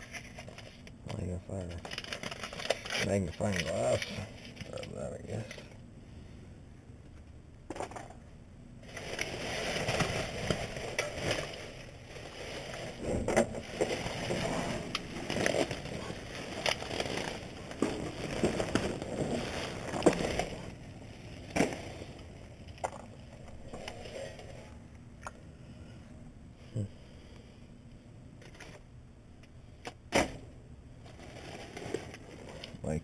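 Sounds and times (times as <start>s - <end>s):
plastic trash bags rustling: 8.8s - 24.4s.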